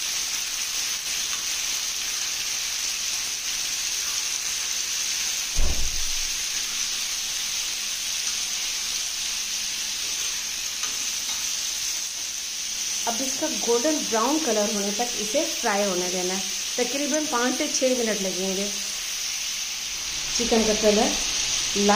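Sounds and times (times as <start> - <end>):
chicken sizzling in hot oil: 0.0 - 21.9
low thump: 5.6 - 6.3.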